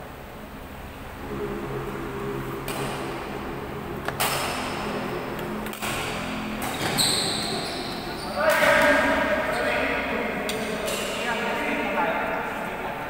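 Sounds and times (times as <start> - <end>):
rackets smacking shuttlecock: 5.4 - 7.0, 7.9 - 9.2
short high-pitched squeak: 6.8 - 8.4.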